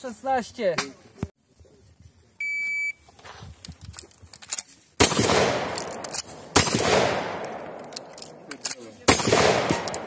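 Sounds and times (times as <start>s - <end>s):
gunshots with ringing echo: 5.0s - 10.0s.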